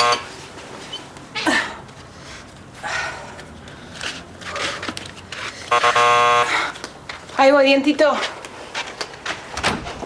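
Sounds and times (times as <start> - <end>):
woman grunting and sighing: 1.3 - 1.9.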